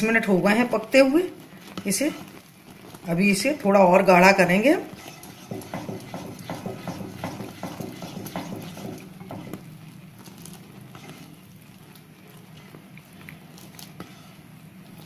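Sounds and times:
simmering pan: 0:00.0 - 0:15.0
ladle scraping steel pan: 0:04.7 - 0:09.7.

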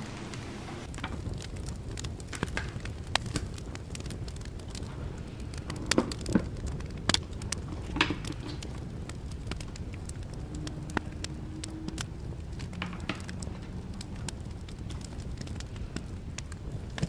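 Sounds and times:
steady low background hum: 0:00.0 - 0:00.9
light crackling of packaging: 0:00.0 - 0:17.0.

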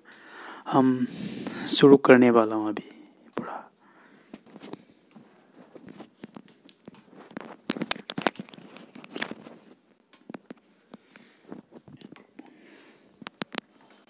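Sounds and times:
earphone microphone handling rustle: 0:04.2 - 0:12.4.

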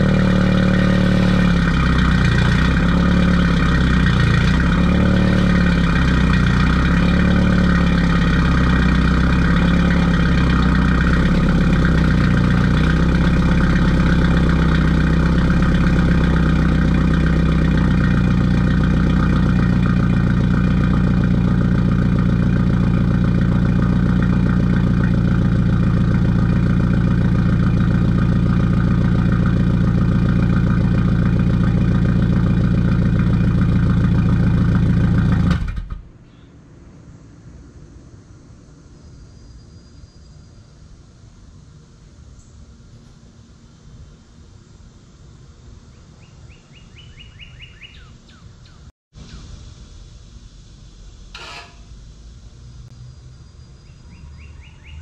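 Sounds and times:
car engine idling: 0:00.0 - 0:36.2.

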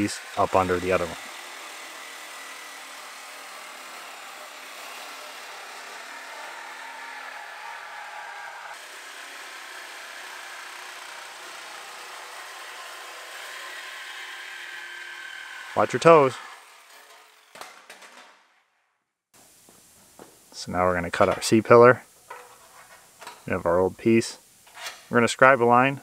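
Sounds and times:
power tool cutting sheet metal: 0:00.0 - 0:18.4.

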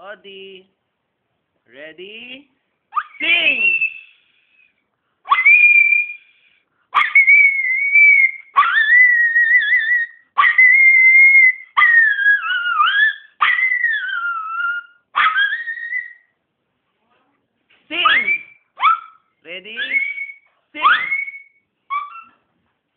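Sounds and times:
dog howling: 0:05.3 - 0:06.2, 0:07.0 - 0:16.3.

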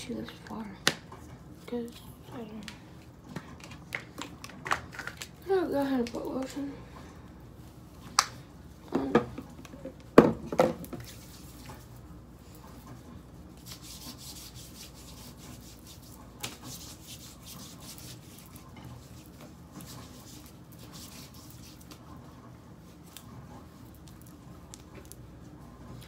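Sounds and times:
hands swishing over skin: 0:13.6 - 0:22.1.

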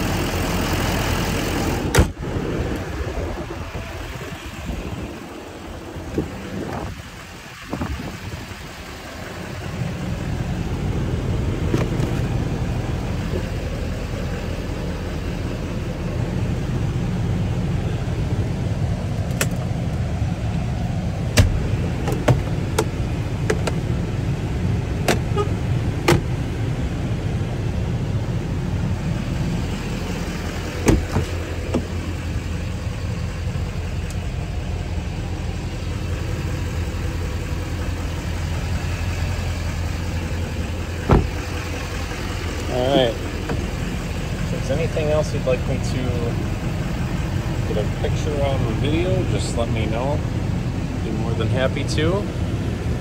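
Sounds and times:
truck engine idling: 0:00.0 - 0:53.0
interior trim clicks and knocks: 0:01.9 - 0:02.9, 0:11.6 - 0:12.5, 0:19.1 - 0:20.6, 0:21.3 - 0:24.0, 0:25.0 - 0:26.4, 0:30.6 - 0:32.1, 0:41.0 - 0:41.7, 0:43.3 - 0:43.9.

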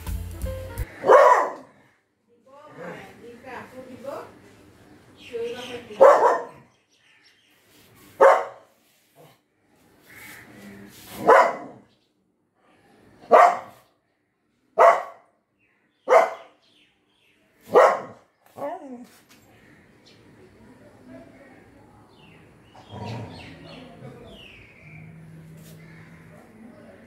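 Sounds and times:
dog barking: 0:00.9 - 0:01.8, 0:05.9 - 0:06.7, 0:08.2 - 0:08.7, 0:11.2 - 0:11.9, 0:13.3 - 0:13.8, 0:14.8 - 0:15.3, 0:16.1 - 0:16.6, 0:17.7 - 0:18.8.

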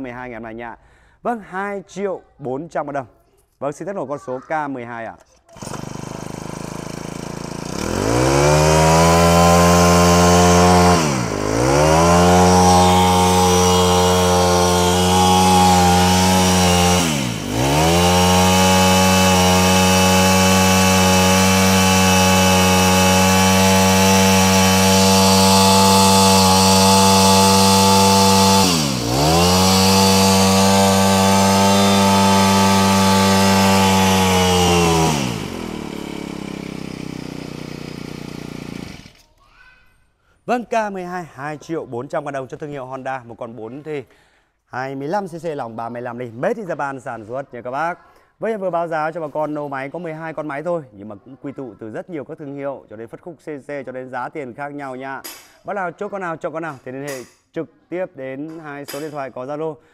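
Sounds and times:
brush cutter engine revving: 0:05.5 - 0:39.4.

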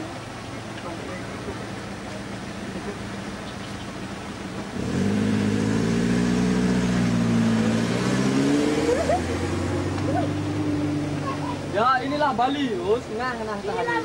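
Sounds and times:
vehicle engine accelerating: 0:01.8 - 0:11.9.

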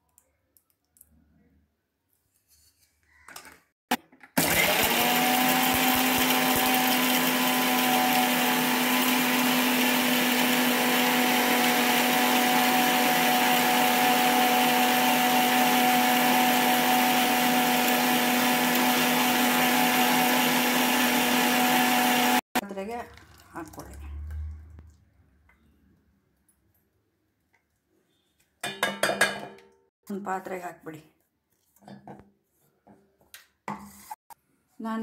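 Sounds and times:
blades grinding wet paste: 0:04.4 - 0:22.4
mixer grinder motor whine: 0:04.4 - 0:22.6.

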